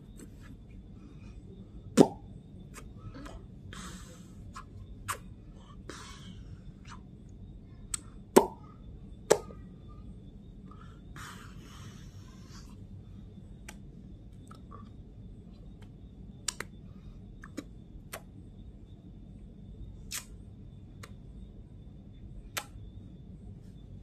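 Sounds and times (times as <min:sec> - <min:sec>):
low hum: 0:00.0 - 0:24.0
breathy hiss: 0:02.7 - 0:07.2, 0:10.6 - 0:13.3.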